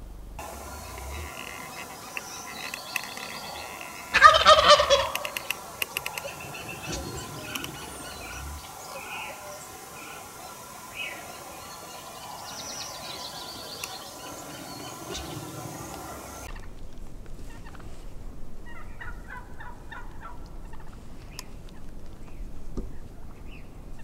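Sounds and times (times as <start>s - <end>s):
background hiss: 0.0s - 24.0s
turkey gobbling: 0.4s - 16.7s, 18.6s - 21.0s.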